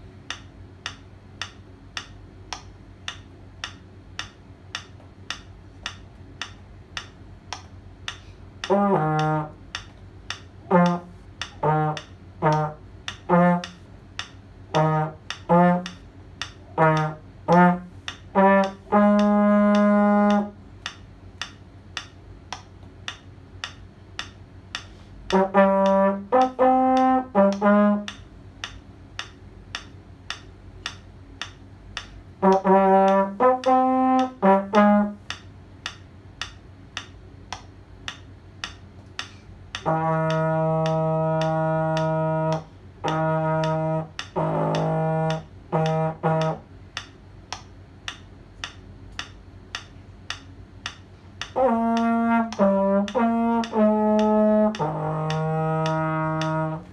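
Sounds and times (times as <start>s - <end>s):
steady ticking: 0.2s - 56.9s
trombone playing: 8.6s - 9.6s, 10.6s - 13.8s, 14.7s - 16.0s, 16.7s - 20.6s, 25.3s - 28.2s, 32.4s - 35.3s, 39.8s - 46.6s, 51.5s - 56.9s.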